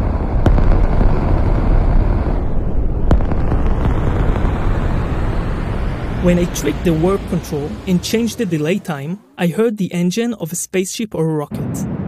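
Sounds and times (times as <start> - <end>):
dense delayed kick drum rumble: 0.0 - 9.3.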